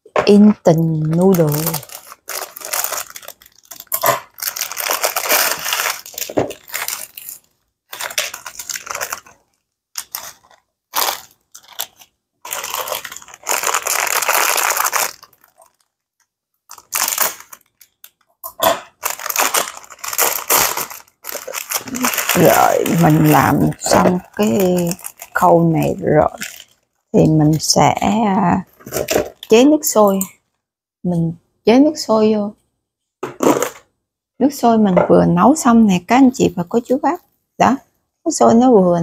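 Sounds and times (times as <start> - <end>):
plastic packets crinkling: 0.7 - 16.0, 16.7 - 27.0
dry noodles crunching: 1.2 - 15.9, 16.7 - 25.6.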